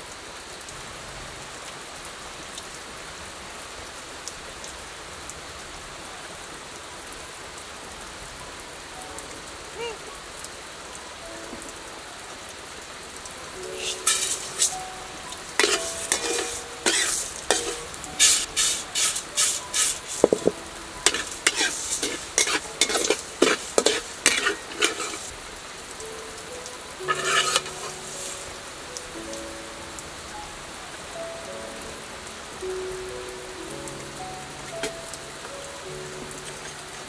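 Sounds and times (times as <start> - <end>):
spatula scraping grains in a wok: 13.8 - 14.9, 15.6 - 25.3, 27.1 - 28.4.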